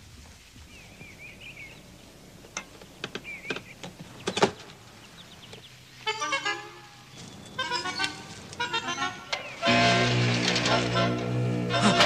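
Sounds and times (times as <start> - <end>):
sustained pitched tone: 7.6 - 12.0.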